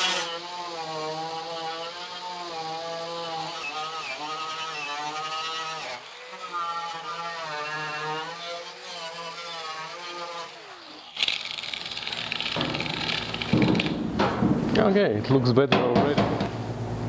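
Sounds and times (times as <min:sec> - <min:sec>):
rotary tool whining: 0:00.0 - 0:14.0
tool set down knock: 0:15.8 - 0:16.5.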